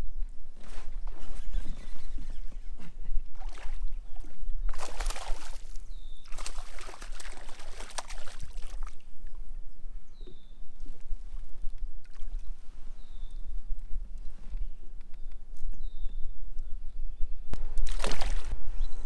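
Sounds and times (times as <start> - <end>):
fish splashing in water: 4.7 - 9.0, 17.8 - 18.6.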